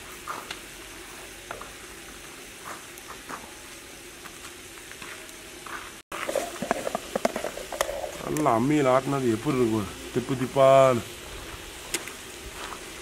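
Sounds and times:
chicken sizzling in pot: 0.0 - 13.0
small pops: 11.9 - 12.2.

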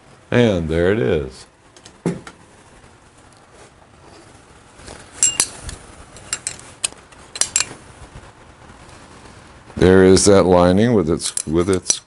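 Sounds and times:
light metallic clinks: 5.2 - 6.6, 7.3 - 7.8.

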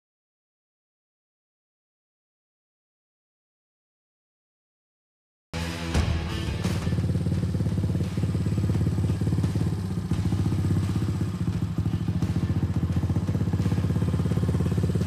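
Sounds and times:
engine idling: 5.6 - 15.0.

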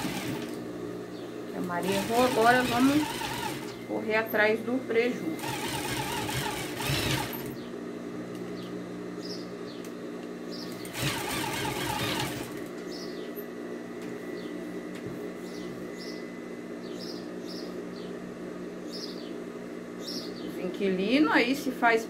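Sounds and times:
sewing machine stitching: 0.0 - 0.6, 1.8 - 3.8, 5.4 - 7.6, 10.8 - 12.7
small birds chirping: 1.1 - 1.4, 8.5 - 11.0, 12.8 - 13.5, 15.4 - 18.2, 18.8 - 20.6.

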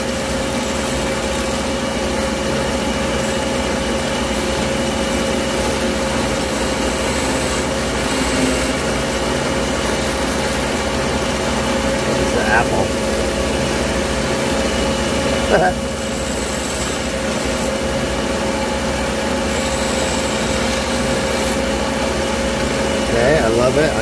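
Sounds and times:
ring saw humming: 0.0 - 24.0
glass carved against saw blade: 0.1 - 11.0, 15.5 - 17.9, 19.5 - 21.7.

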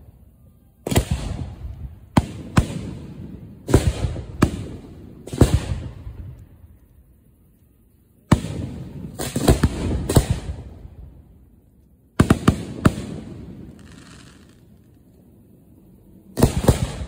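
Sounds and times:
firework shells exploding: 16.3 - 17.0.

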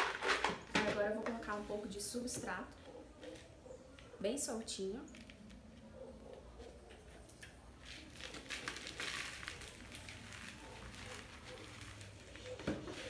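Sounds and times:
potting soil pouring: 5.1 - 13.0.

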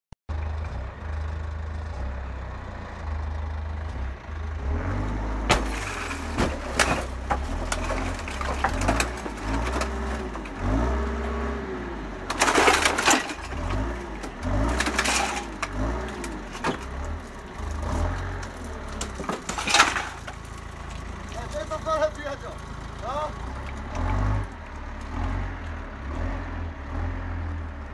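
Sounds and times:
forklift engine revving: 0.3 - 27.9
car body cracking and crunching: 5.5 - 11.3, 12.1 - 22.7.

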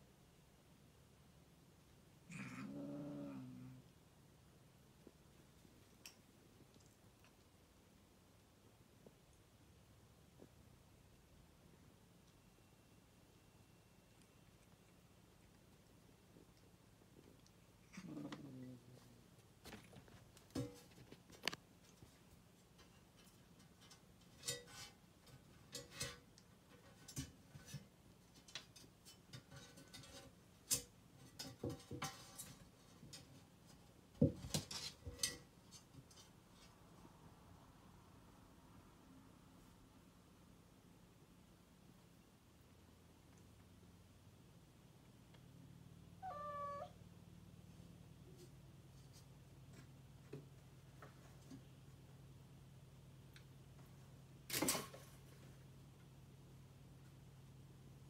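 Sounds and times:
kitten paws tapping and scraping: 14.1 - 37.0
cat meowing: 46.2 - 47.0.

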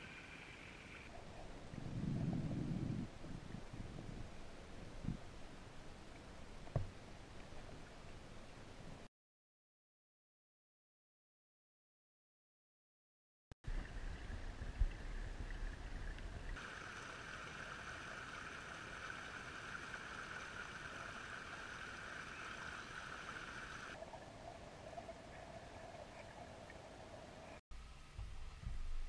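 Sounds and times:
low microphone rumble: 1.6 - 5.2
creek water babbling over stones: 13.7 - 27.6.

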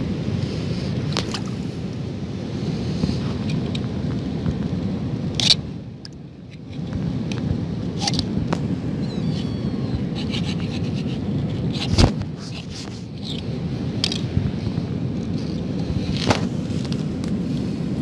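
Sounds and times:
wind buffeting microphone: 0.0 - 18.0
knife scraping against rock: 10.1 - 13.4.

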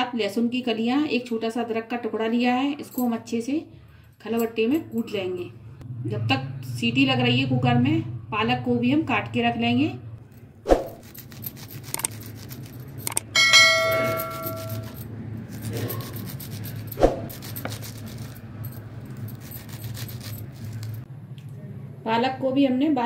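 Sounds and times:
metallic clang: 13.1 - 15.0.

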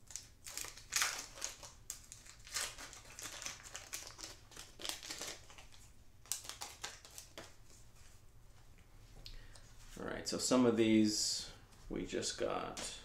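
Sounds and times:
wrapper crinkling and tearing: 0.0 - 7.6.

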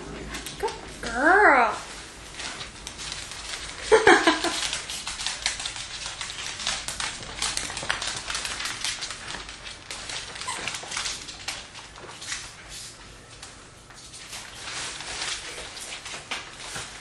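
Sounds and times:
tissue paper and bag rustling: 0.2 - 13.2, 14.0 - 17.0
claws clicking on wooden floor: 2.4 - 12.6.

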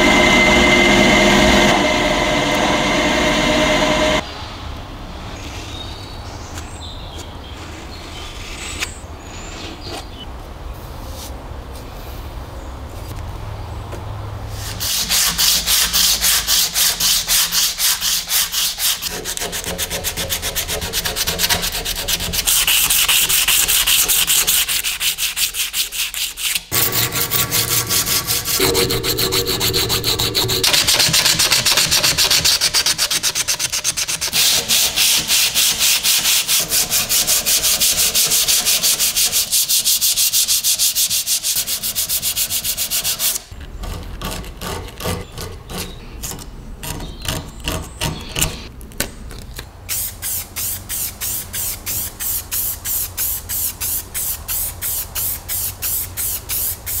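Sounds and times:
abrasive strip sanding metal: 14.6 - 43.5.

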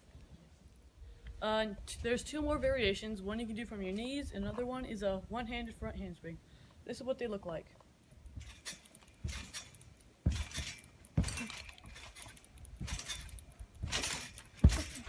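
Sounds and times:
springs jingling: 8.3 - 15.0
thumps on trampoline mat: 8.4 - 15.0.

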